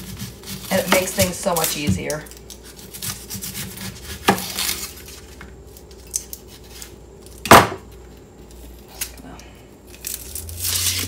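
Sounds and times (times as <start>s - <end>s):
knife cutting onion: 0.0s - 5.1s
onion skin rustling: 0.0s - 11.0s.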